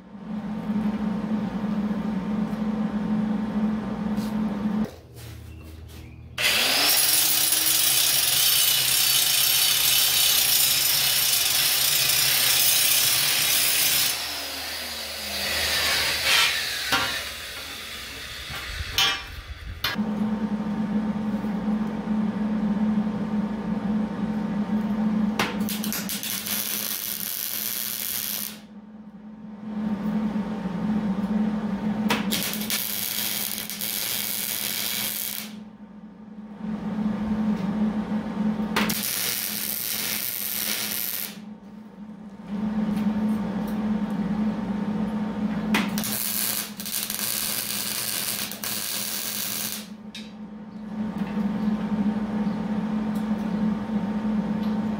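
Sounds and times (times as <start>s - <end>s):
low hum: 0.0s - 5.0s, 14.2s - 54.9s
welder arc crackling: 25.6s - 28.7s, 32.2s - 35.6s, 38.9s - 41.4s, 45.9s - 50.0s.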